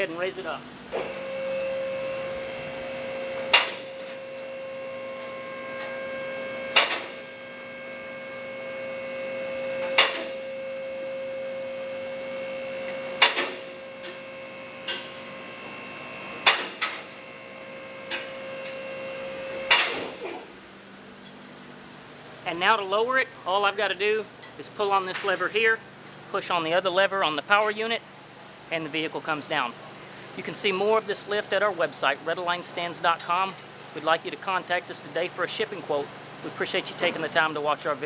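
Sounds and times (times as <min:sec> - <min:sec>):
hydraulic motor and pump hum: 0:00.0 - 0:38.0
loud metallic clack: 0:03.5 - 0:04.2, 0:06.7 - 0:07.2, 0:09.9 - 0:10.4, 0:13.2 - 0:13.7, 0:16.4 - 0:17.1, 0:19.7 - 0:20.2.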